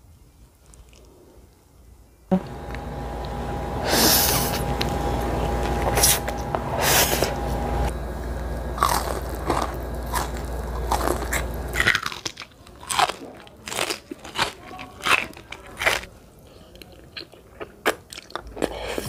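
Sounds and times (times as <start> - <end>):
steady background hum: 2.2 - 17.1
crunching of fried food: 8.2 - 19.0
wet chewing: 8.4 - 19.0
noodles slurped: 8.8 - 12.4.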